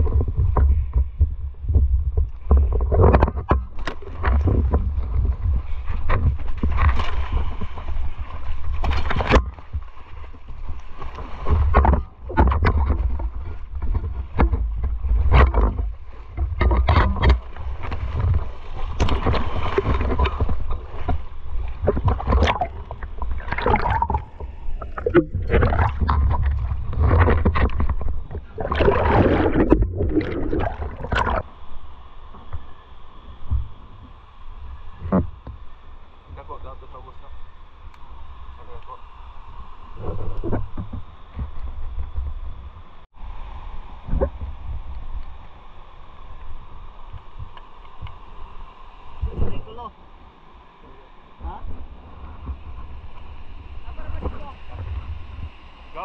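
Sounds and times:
water splashing and sloshing: 0.0 - 32.7
steady low rumble: 0.0 - 56.0.

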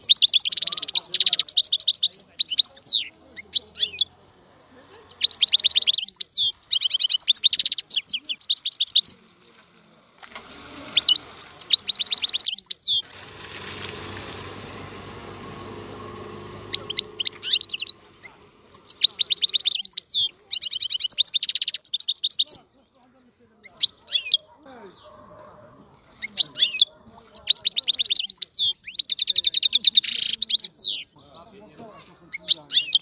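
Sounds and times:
goldfinch twittering: 10.9 - 22.8.

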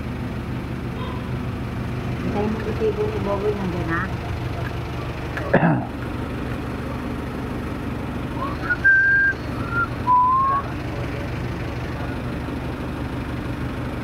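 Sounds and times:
vehicle engine idling: 0.0 - 14.0
person whistling: 8.4 - 10.7.

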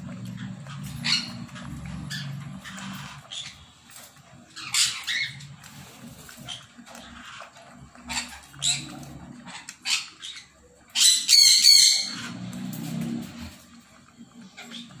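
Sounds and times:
puppy lapping from a bowl: 0.0 - 10.6.

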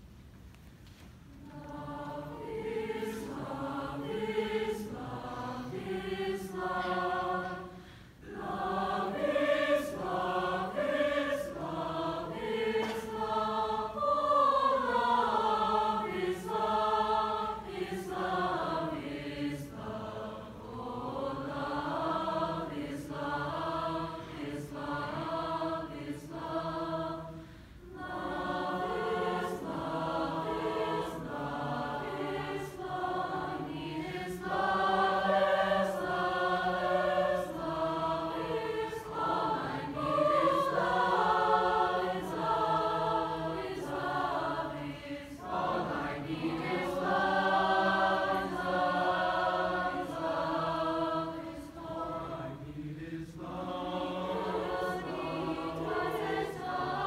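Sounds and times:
choir singing in parts: 1.4 - 57.0
singers breathing: 7.6 - 8.3, 27.3 - 27.9.

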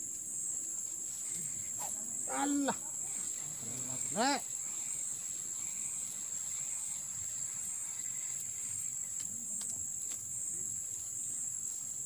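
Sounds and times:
insects shrilling: 0.0 - 12.0
faint ticks: 5.6 - 10.3.

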